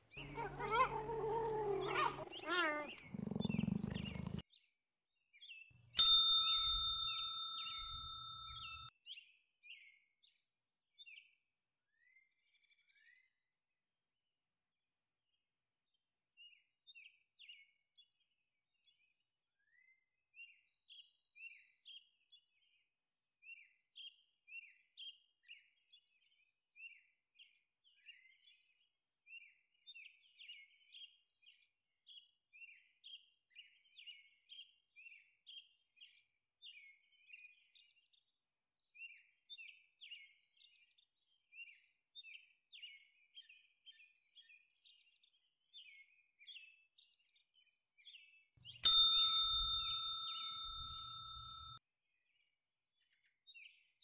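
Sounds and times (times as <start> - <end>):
bird chirping: 0.0 - 4.4, 6.5 - 9.9, 48.1 - 51.8.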